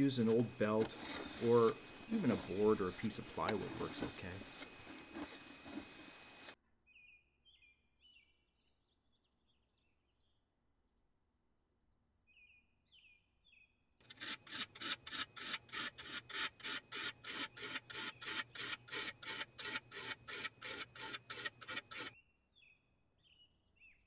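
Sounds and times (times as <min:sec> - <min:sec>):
sharpening rod rasping on knife: 0:00.2 - 0:06.6, 0:14.1 - 0:22.1.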